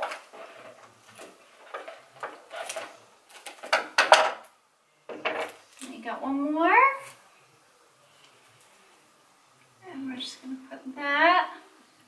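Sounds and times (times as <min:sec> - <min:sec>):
paper and tape crinkling: 0:00.0 - 0:03.9.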